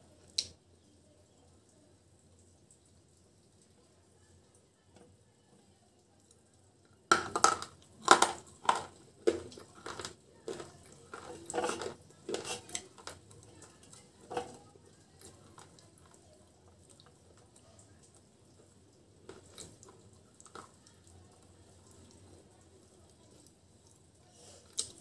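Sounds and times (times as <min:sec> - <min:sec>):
crunching chip: 0:07.1 - 0:13.3.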